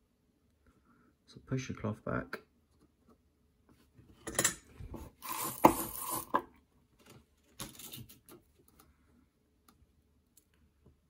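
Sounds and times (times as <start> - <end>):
scraping and rustling of handling: 2.7 - 9.1.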